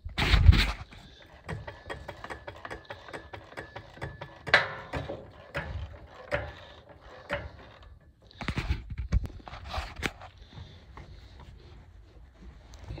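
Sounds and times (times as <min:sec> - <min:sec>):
metallic clicks and clanks: 0:00.2 - 0:10.2.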